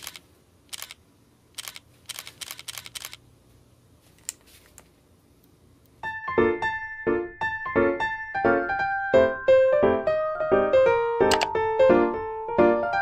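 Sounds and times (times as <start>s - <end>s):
camera shutter clicks: 0.0s - 1.0s, 1.6s - 3.2s
bouncy keyboard tune: 6.0s - 13.0s.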